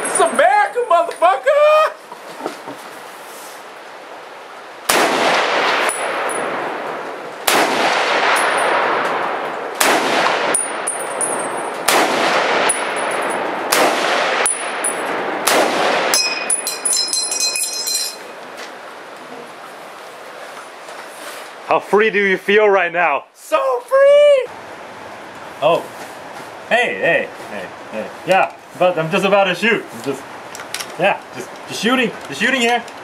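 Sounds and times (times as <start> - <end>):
rifle shots: 4.9 - 6.8, 7.4 - 16.4
ringing metallic ping: 16.1 - 18.4
short metallic clinks: 16.1 - 18.4.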